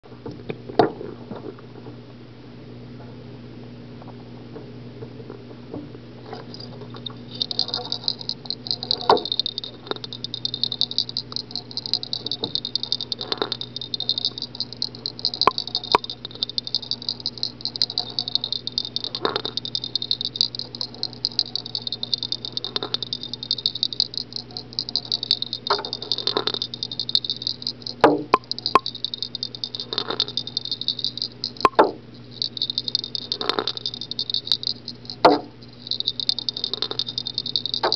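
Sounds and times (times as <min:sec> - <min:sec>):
vibrating lure rattling buzz: 0:06.5 - 0:37.9
sharp knocks and clicks: 0:07.4 - 0:37.9.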